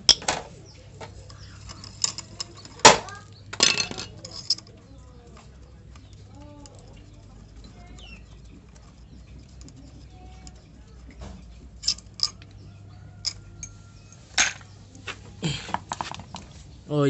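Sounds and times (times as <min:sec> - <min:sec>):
sharp metallic clinks: 0:01.3 - 0:04.9, 0:11.8 - 0:14.2.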